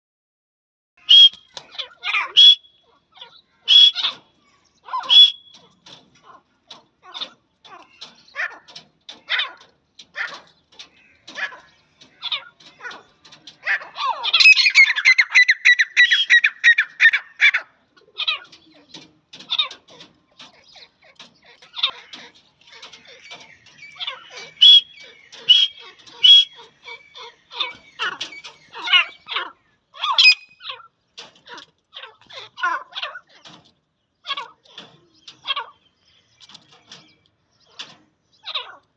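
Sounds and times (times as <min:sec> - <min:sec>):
francolins calling: 0:01.0 - 0:06.4, 0:07.0 - 0:31.1.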